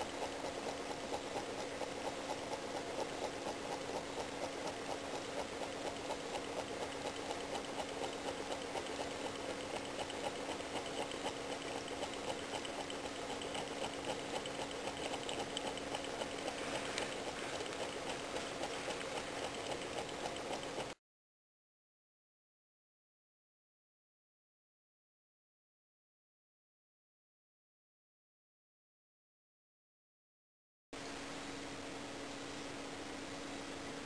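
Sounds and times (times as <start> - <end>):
stirling engine ticking: 0.0 - 21.0.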